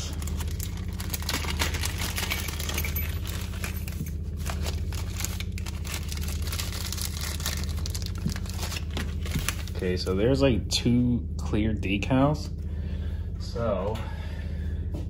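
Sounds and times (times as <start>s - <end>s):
plastic bags crinkling: 0.0s - 10.0s
steady low hum: 0.0s - 15.0s.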